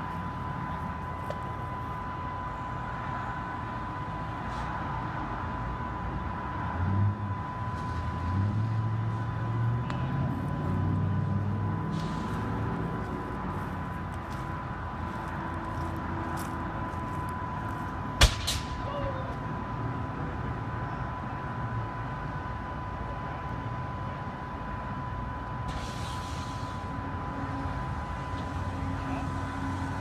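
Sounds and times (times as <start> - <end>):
vehicle engine running: 5.0 - 18.3
sharp bang: 18.2 - 19.1.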